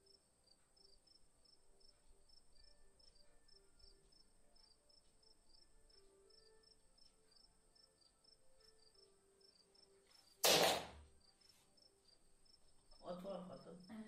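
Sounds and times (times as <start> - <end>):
faint high-pitched chirps: 0.0 - 10.4.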